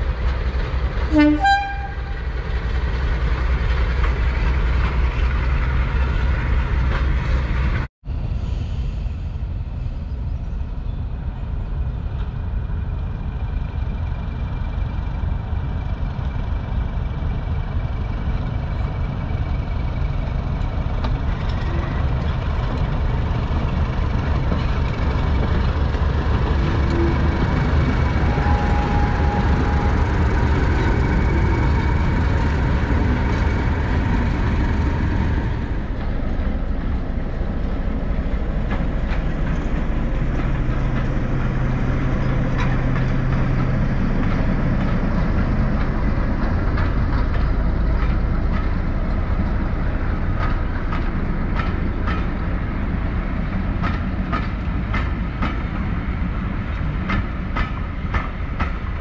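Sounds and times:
diesel train engine drone: 0.0s - 59.0s
carriages rumbling: 13.4s - 59.0s
wheels clicking over rail joints: 17.5s - 59.0s.

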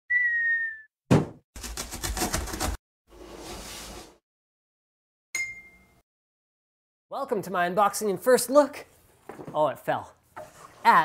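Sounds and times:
cardboard box thud: 1.1s - 1.4s.

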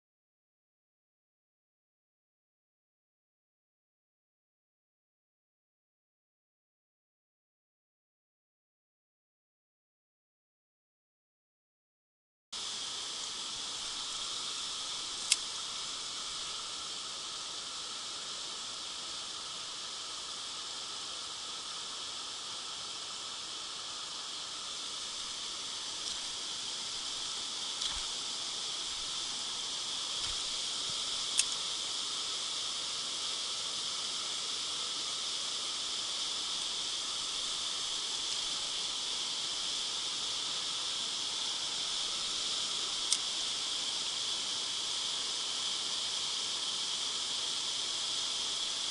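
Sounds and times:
high-pitched riverbank hiss: 12.6s - 48.9s
sharp click: 15.2s - 15.5s, 31.3s - 31.6s.

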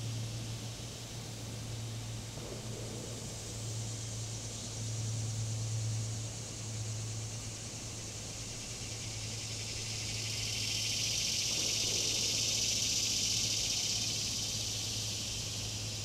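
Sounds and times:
cicada buzzing drone: 0.0s - 16.0s.

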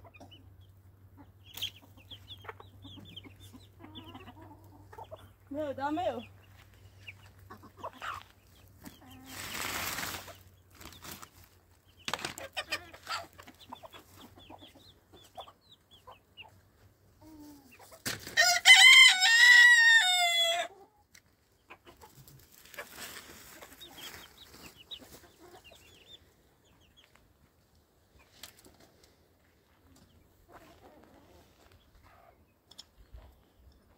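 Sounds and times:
chickens clucking: 0.0s - 18.4s, 20.0s - 33.9s
rooster crowing: 18.4s - 20.7s.

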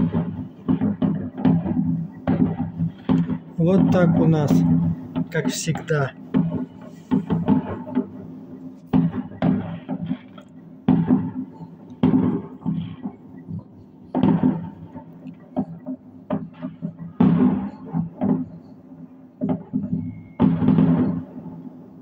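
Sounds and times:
small firework pops: 0.0s - 18.5s, 19.4s - 21.6s
fireworks banging with echo: 0.0s - 21.8s.

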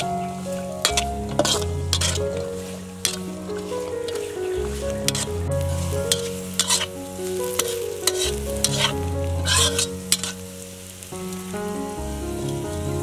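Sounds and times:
vegetables sizzling in oil: 0.0s - 13.0s
metal spatula scraping wok: 0.5s - 10.5s.

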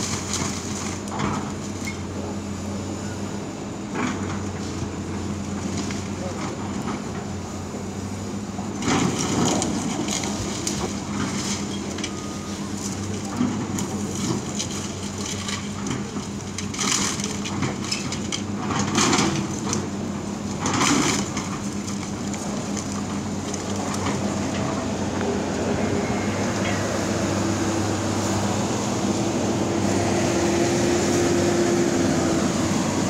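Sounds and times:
excavator engine drone: 0.0s - 33.0s.

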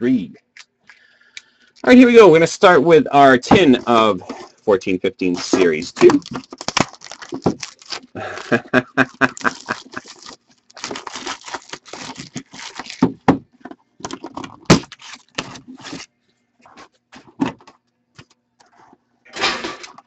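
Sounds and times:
plastic wrap tearing and crinkling: 5.3s - 8.2s, 9.2s - 13.3s, 14.0s - 16.1s.

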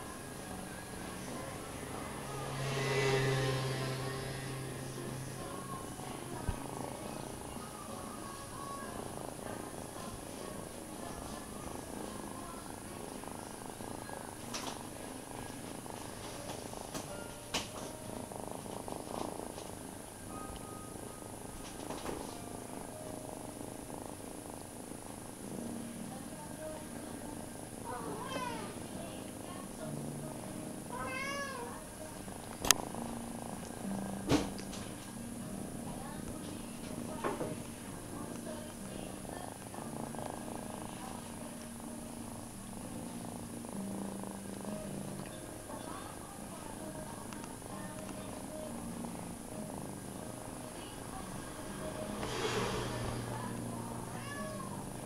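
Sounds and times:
cat purring: 0.0s - 55.0s.

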